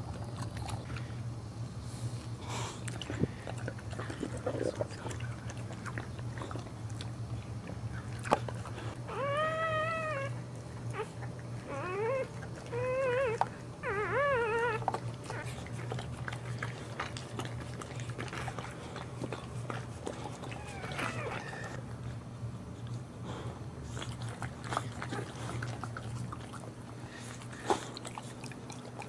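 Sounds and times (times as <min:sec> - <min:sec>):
dog licking with wet clicks: 0:02.8 - 0:08.9, 0:14.5 - 0:21.8, 0:23.9 - 0:29.0
puppy crying: 0:09.0 - 0:15.8, 0:20.2 - 0:21.8.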